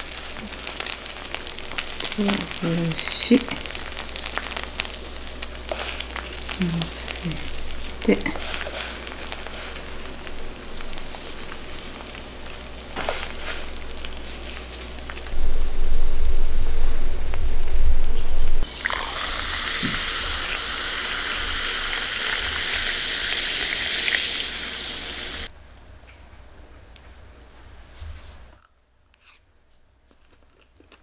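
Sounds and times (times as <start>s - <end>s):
food sizzling on a griddle: 0.0s - 17.5s, 18.6s - 25.5s
loud low rumble: 15.3s - 18.6s.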